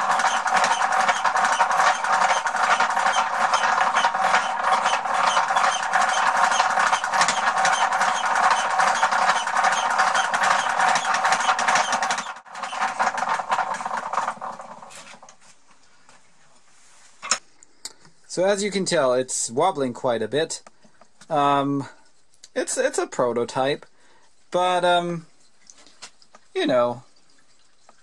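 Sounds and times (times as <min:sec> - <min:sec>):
chisel scraping spinning wood: 0:00.0 - 0:15.4
wooden gears rattling: 0:00.0 - 0:15.4.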